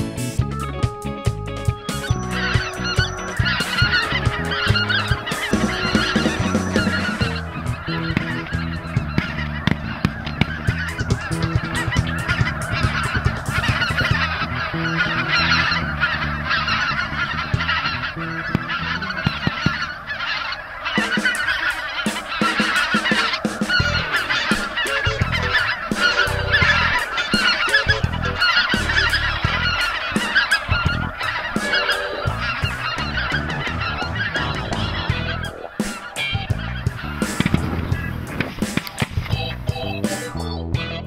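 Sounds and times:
geese honking: 0.2s - 41.0s.

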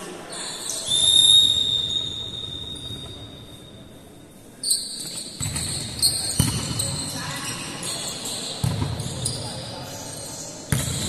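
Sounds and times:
shrill whistle-like tones: 0.4s - 3.7s.

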